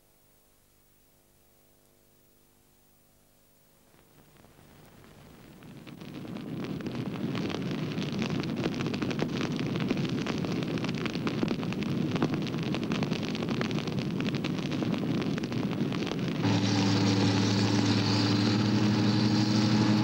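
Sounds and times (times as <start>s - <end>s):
forest fire crackling: 3.8s - 20.0s.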